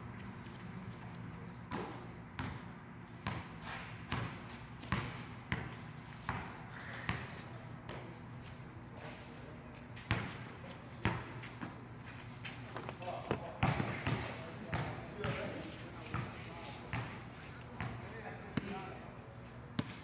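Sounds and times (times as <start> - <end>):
basketball bouncing on concrete: 1.7 - 8.1, 10.0 - 10.4, 13.3 - 15.5, 17.8 - 18.9, 19.8 - 20.0.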